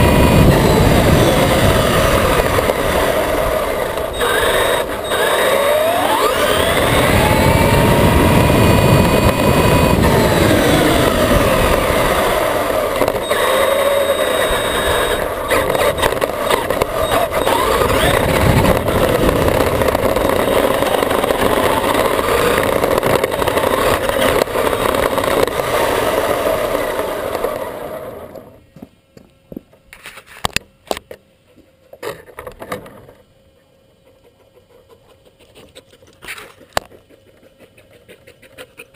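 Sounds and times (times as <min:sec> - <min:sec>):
electric motor whining: 0:00.0 - 0:28.6
tyre and chassis noise: 0:00.0 - 0:29.0.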